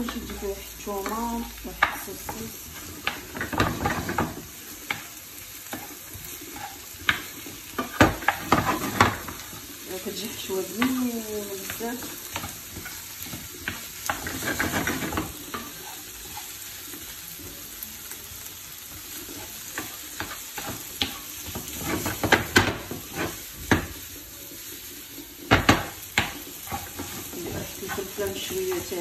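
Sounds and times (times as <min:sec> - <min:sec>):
food sizzling in a frying pan: 0:00.0 - 0:29.0
utensil scraping and knocking pan: 0:12.4 - 0:16.5.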